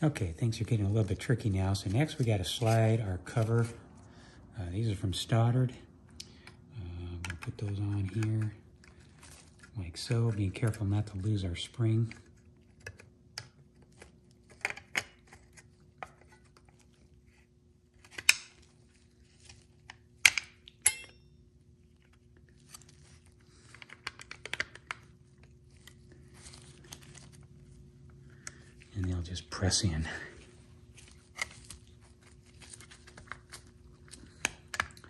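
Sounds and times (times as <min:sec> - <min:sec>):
plastic and metal parts clicking: 0:23.6 - 0:25.1
glove rustling: 0:25.1 - 0:34.7.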